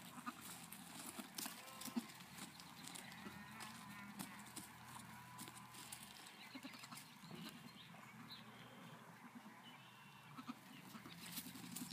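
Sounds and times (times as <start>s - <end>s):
hoof scuffs: 0.0s - 8.2s, 10.6s - 11.9s.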